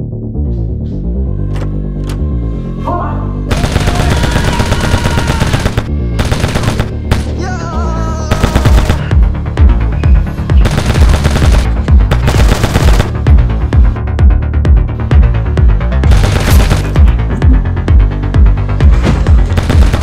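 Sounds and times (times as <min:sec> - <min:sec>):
machine-gun fire: 0:03.5 - 0:07.3, 0:08.3 - 0:09.2, 0:10.6 - 0:13.4, 0:16.0 - 0:17.1, 0:19.4 - 0:20.0.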